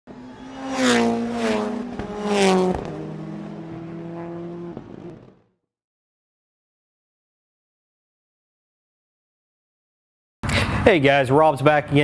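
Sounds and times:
car engine revving: 0.1 - 5.6.

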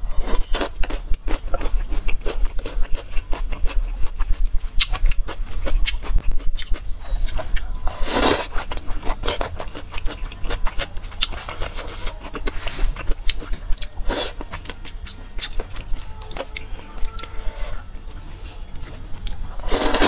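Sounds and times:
wet chewing and lip-smacking: 0.2 - 20.0
slurping noodles: 8.0 - 9.7, 19.6 - 20.0.

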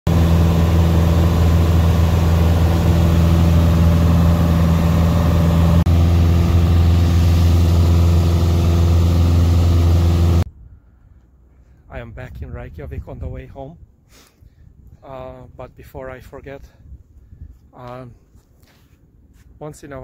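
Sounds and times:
aircraft engine drone in cabin: 0.1 - 10.5.

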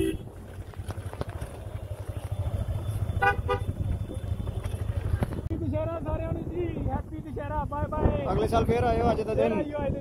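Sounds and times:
horn toots: 0.0 - 0.4, 3.2 - 3.8
vehicle engine rumbling: 0.0 - 10.0.

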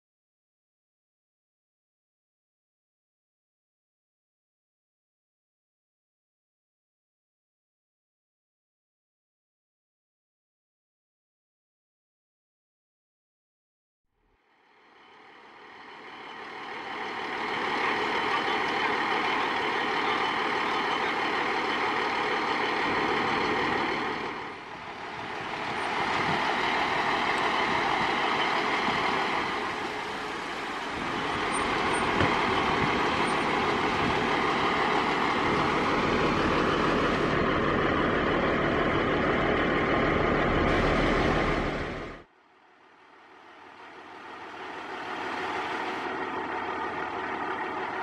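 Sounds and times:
diesel engine idling: 14.6 - 48.0.

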